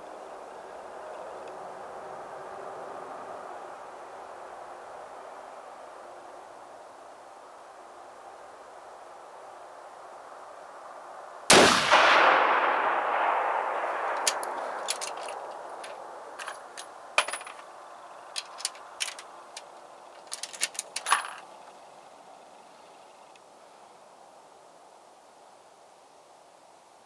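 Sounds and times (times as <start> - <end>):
rifle shot echoing: 11.5 - 15.7
metallic clicks of rifle handling: 14.1 - 17.7, 18.3 - 21.5.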